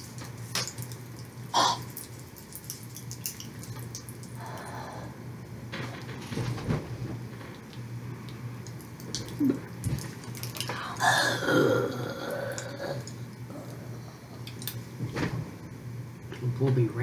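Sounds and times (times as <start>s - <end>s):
popping candy crackling: 5.7s - 11.1s.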